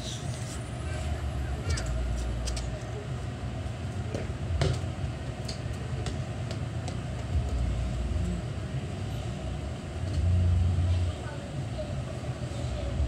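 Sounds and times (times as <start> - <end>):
football thud on concrete: 4.1 - 4.9
steady low rumble: 7.0 - 11.9.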